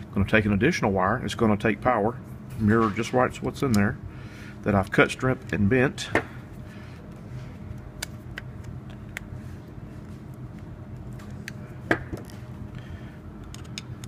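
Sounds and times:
low room hum: 0.0 - 14.0
pliers and wire clicking: 13.4 - 14.0.

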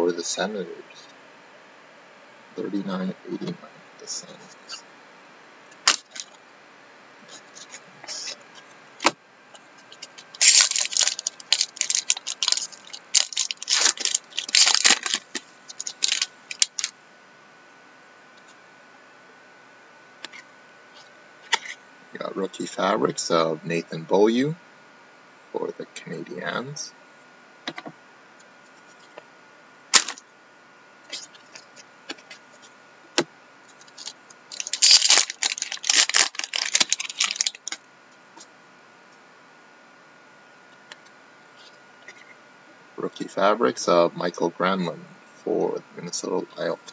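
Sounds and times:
plastic and foil packaging crinkling: 5.9 - 6.4, 9.9 - 16.9, 30.0 - 30.2, 33.7 - 37.8
trading cards flicking and snapping: 9.8 - 16.9, 30.0 - 30.2.

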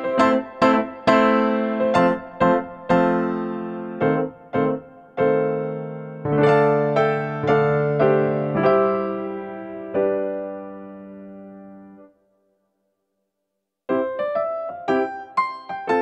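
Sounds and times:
slow electric piano tune: 0.0 - 12.2, 13.9 - 16.0.

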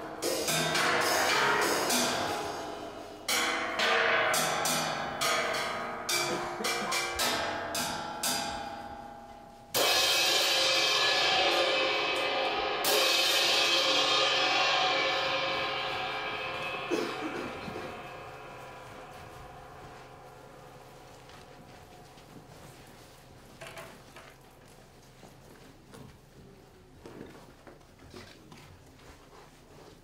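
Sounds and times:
heavy ringing metal crashes: 0.0 - 22.0
sharp metal percussion hits: 0.0 - 22.8.

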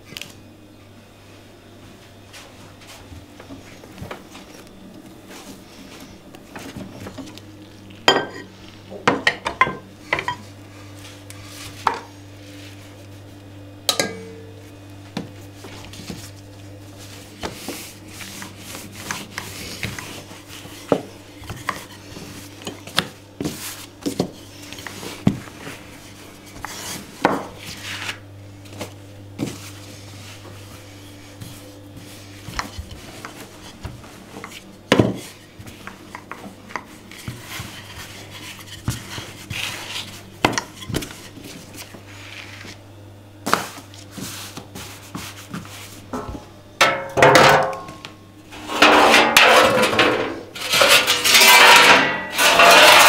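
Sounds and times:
steady low hum: 0.0 - 53.0
dishes and cutlery clinking: 8.1 - 8.5, 13.9 - 14.5.

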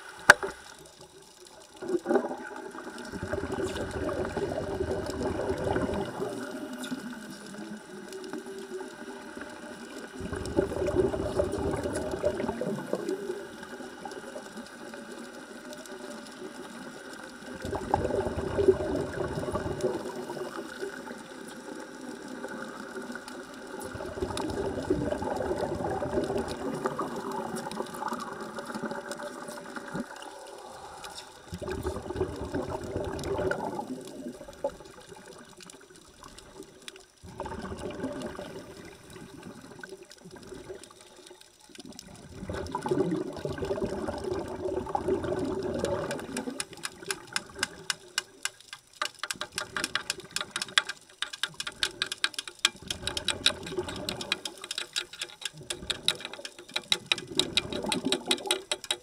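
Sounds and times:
underwater bubbles rushing: 0.0 - 50.8, 52.7 - 59.0.

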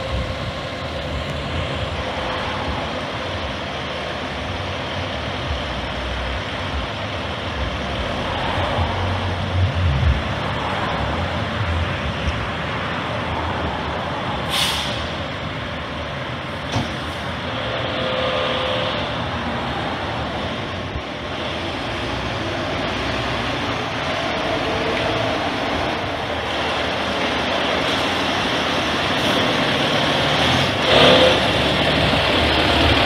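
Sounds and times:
truck diesel engine running: 0.0 - 33.0
air brake hiss: 14.4 - 15.2.

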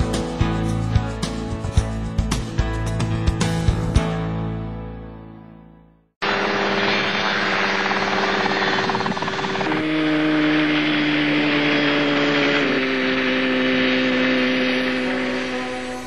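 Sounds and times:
helicopter engine and rotor drone: 6.2 - 16.0.

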